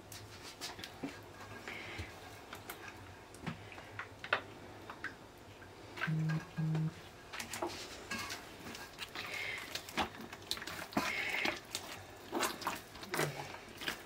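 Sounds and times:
low steady hum: 0.0 - 14.0
short low tone: 6.0 - 7.0.

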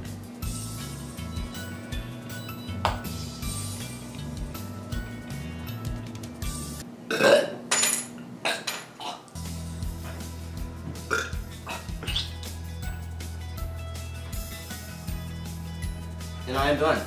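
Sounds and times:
background music with bass line: 0.0 - 6.8, 9.4 - 17.0
man gagging and retching: 7.1 - 7.6, 11.1 - 12.3.

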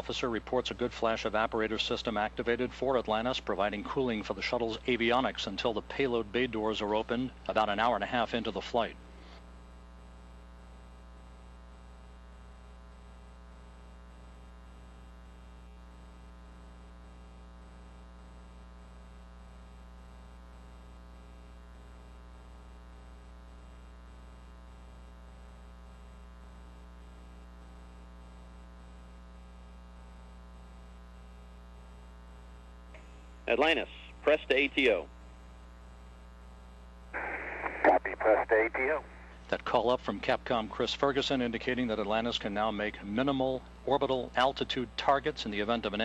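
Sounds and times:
electrical hum: 0.0 - 46.0
faint hiss: 37.2 - 39.5.

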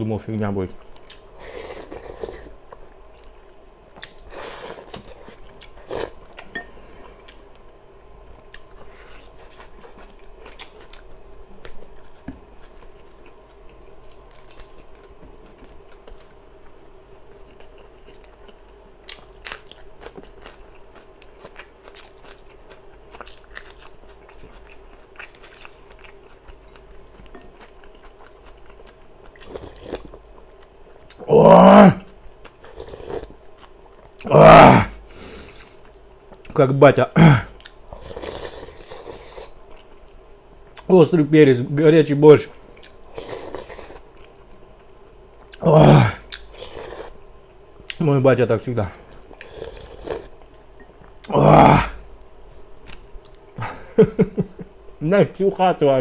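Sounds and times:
person chewing food: 8.4 - 31.3, 32.0 - 34.3, 37.6 - 40.9, 42.7 - 48.0, 49.0 - 51.4.

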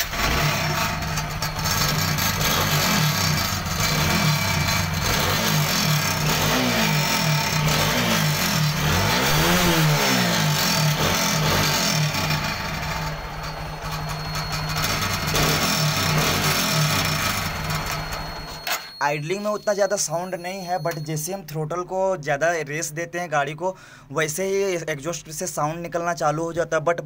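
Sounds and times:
rattling exhaust silencer: 0.0 - 18.5
motorcycle engine revving: 0.0 - 18.6.

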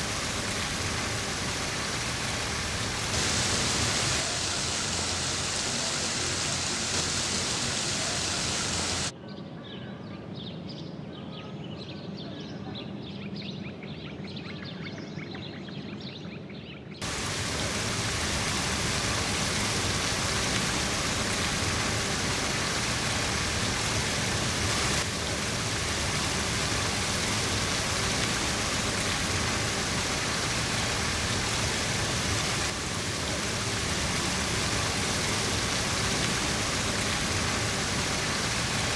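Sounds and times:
faint high water patter: 0.0 - 9.1, 17.0 - 38.9
water rushing over weir: 0.0 - 9.1, 17.0 - 38.9.

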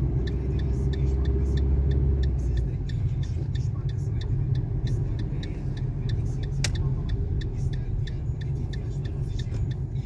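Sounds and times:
car engine and tyres on wet road: 0.0 - 10.0
light ticks: 0.2 - 10.0
sharp click: 6.4 - 6.9.

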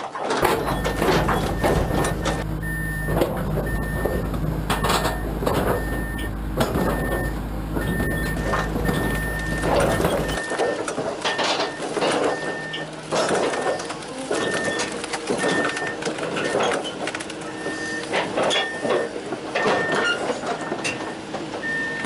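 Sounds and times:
crawler tracks clanking and squeaking: 0.1 - 22.0.

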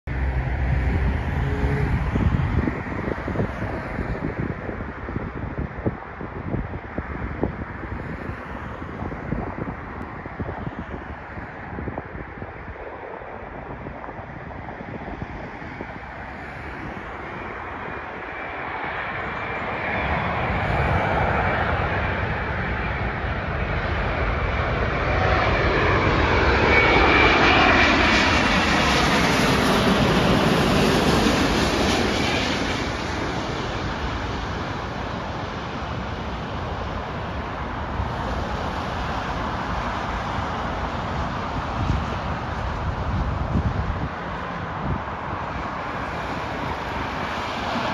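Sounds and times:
airliner engine noise: 0.0 - 47.9.

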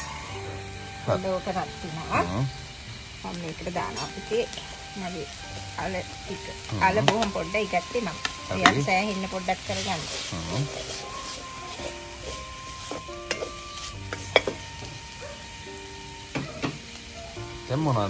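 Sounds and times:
vegetables sizzling in a wok: 0.0 - 18.0
spoon scraping pan: 8.1 - 15.6.

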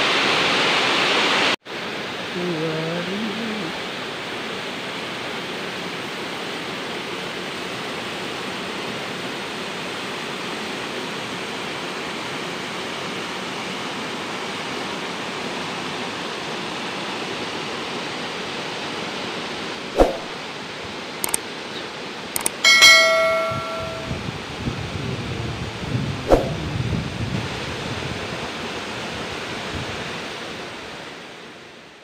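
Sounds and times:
waterfall rushing into pool: 0.0 - 24.1, 27.4 - 32.0.

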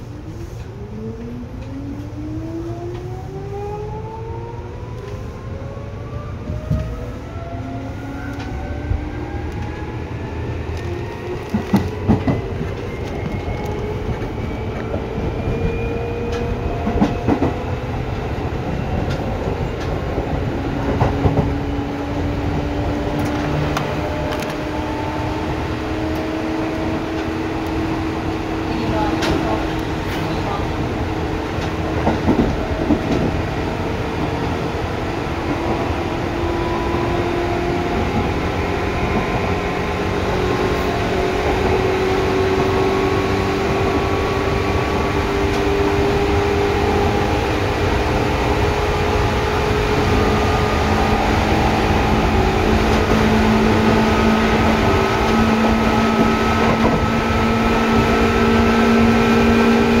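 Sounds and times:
train running gear rumble: 6.4 - 60.0.

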